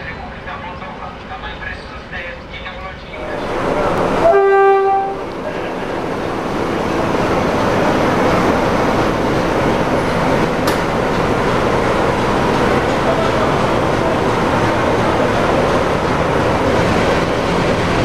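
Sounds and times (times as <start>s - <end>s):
train running noise: 0.0s - 18.0s
locomotive horn: 4.2s - 5.3s.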